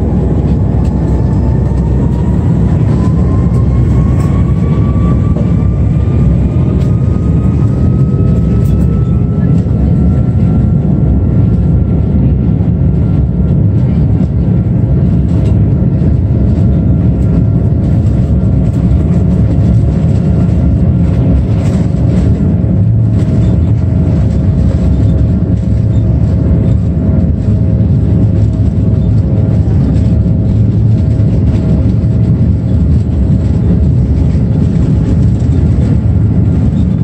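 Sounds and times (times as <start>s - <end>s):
airliner cabin engine rumble: 0.0s - 37.0s
steady hum tones: 0.0s - 37.0s.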